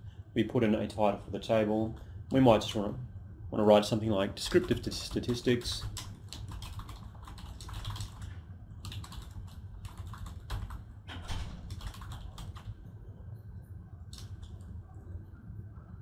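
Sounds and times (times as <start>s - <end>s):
low steady hum: 0.0s - 16.0s
typing on keyboard: 4.4s - 12.8s, 14.1s - 14.7s.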